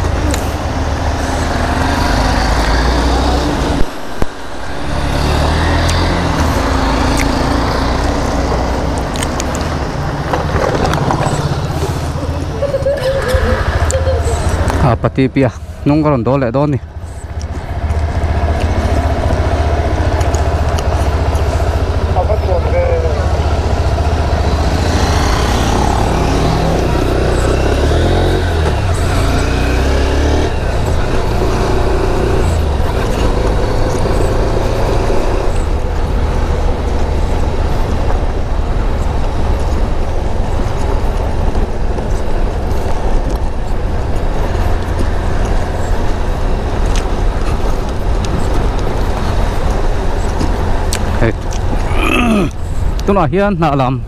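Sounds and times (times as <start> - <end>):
motorcycle engine accelerating: 0.0 - 15.1, 16.2 - 52.6
low wind rumble on microphone: 0.0 - 54.0.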